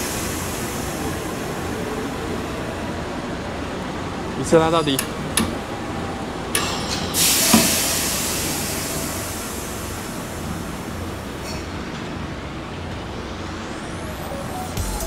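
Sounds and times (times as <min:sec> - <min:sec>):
train brake hiss: 0:00.0 - 0:02.2, 0:06.6 - 0:11.9.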